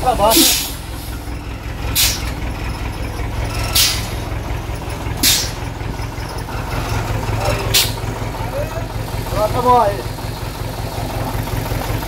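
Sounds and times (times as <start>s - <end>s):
diesel truck engine running: 0.0s - 12.0s
short sharp hisses: 2.0s - 2.3s, 3.8s - 4.2s.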